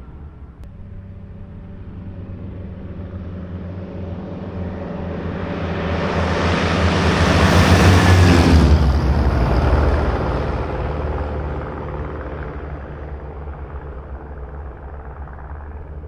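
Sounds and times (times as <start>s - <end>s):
light aircraft engines droning: 0.0s - 16.0s.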